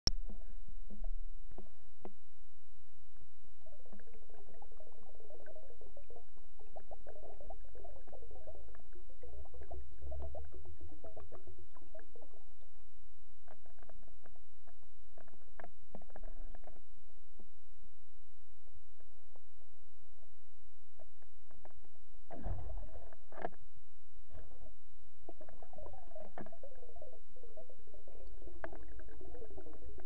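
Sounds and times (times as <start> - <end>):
underwater low rumble: 0.1 - 30.0
gurgling bubbling water: 3.6 - 16.8, 22.3 - 23.6, 24.3 - 30.0.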